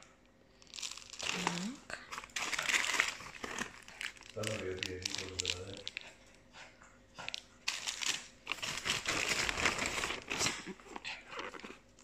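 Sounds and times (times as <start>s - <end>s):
plastic packaging crinkling: 0.6s - 6.2s, 7.3s - 12.0s.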